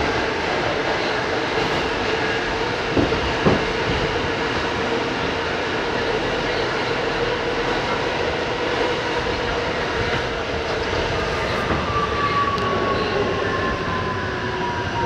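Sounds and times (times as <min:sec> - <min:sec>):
subway wheels rumbling on rail: 0:00.0 - 0:15.0.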